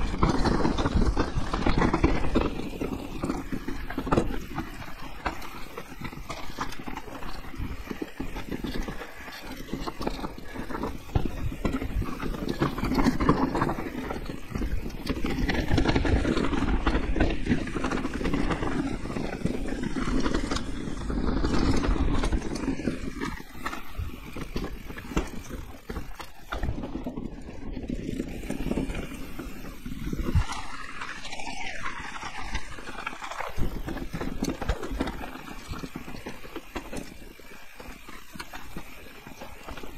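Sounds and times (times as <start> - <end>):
bike frame and chain rattling: 0.0 - 39.9
tyres rumbling over dirt: 0.0 - 39.9
wind on microphone: 7.4 - 30.8.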